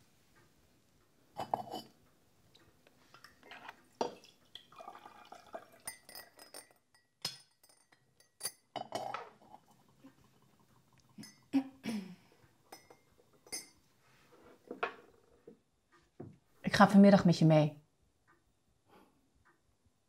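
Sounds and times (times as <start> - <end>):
tea pouring into cups: 3.1 - 7.2, 7.9 - 11.8
china crockery clinking: 5.8 - 9.4, 11.1 - 11.5, 12.7 - 13.8.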